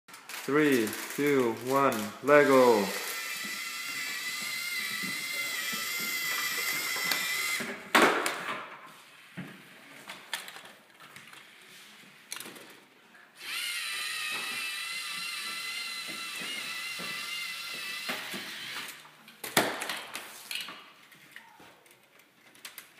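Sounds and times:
robot motors whining: 2.9 - 7.6, 13.4 - 19.0.

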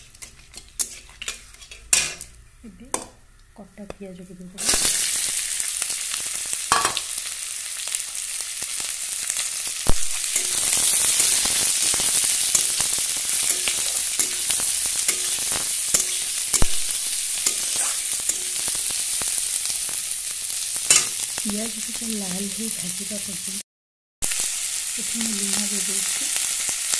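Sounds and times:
spatula scraping a pan: 0.0 - 2.4, 10.3 - 16.7, 17.3 - 19.3
onions sizzling in oil: 0.0 - 23.6, 24.2 - 26.9.

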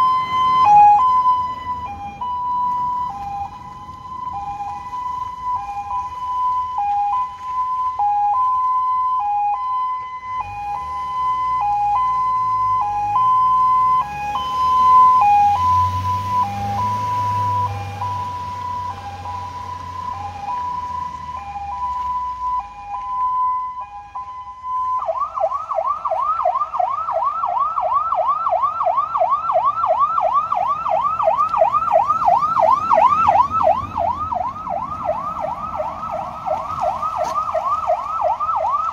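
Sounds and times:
electronic siren: 0.0 - 38.9
car engine passing: 10.3 - 27.6, 28.9 - 38.9.

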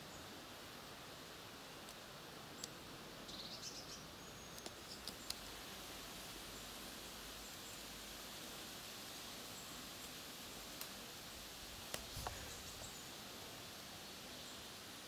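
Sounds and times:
steady low hiss: 0.0 - 15.0
small bird chirping: 2.5 - 5.5.

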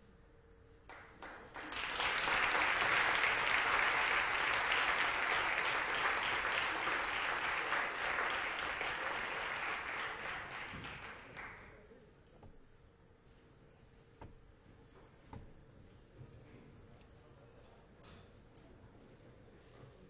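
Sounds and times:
audience applauding: 0.9 - 11.7.

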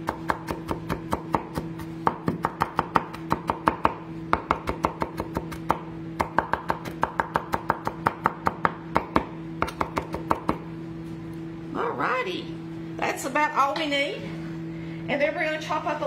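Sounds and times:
knife chopping on wooden board: 0.0 - 10.6.

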